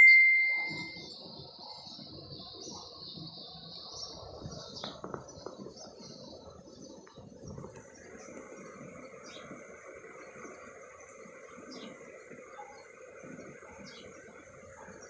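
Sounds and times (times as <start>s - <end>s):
ringing ding: 0.0s - 1.0s
high-pitched chirring: 0.0s - 1.1s.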